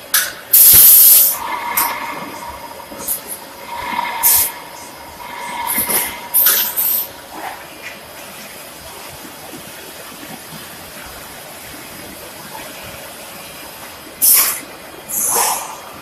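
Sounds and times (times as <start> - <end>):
compressed air hisses: 14.2 - 16.0.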